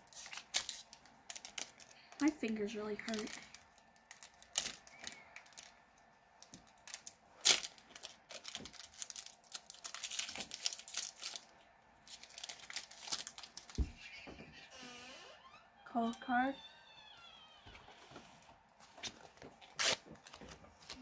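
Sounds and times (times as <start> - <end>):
foil wrapper tearing and crinkling: 0.0 - 2.4, 3.0 - 5.8, 6.4 - 13.9, 19.0 - 21.0.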